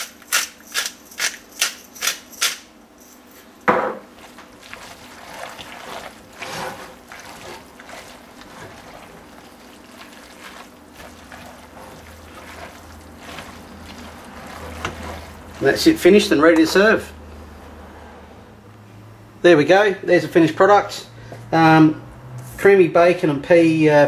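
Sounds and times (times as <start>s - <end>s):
pepper mill grinding: 0.0s - 3.6s, 4.2s - 16.3s
wet squelching of sauce: 4.2s - 15.8s
utensil scraping a metal pot: 4.3s - 16.2s.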